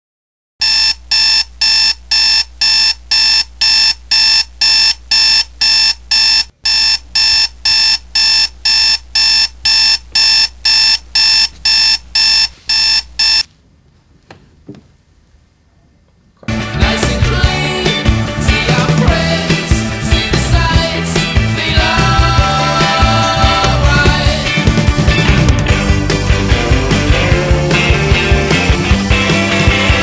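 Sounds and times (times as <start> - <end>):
alarm clock beeping: 0.6 - 13.5.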